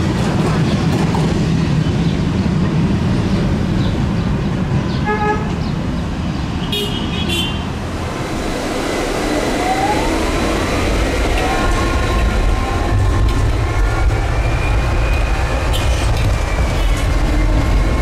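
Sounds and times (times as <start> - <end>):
tram rumble: 0.0 - 18.0
car horns honking: 6.7 - 7.7
rising whine: 7.7 - 18.0.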